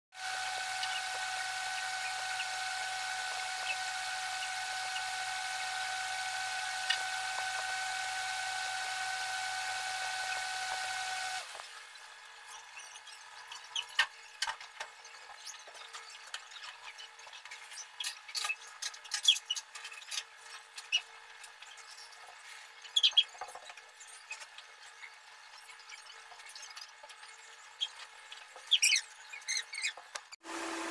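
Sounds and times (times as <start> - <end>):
electrical hum with whine: 0.2 - 18.0.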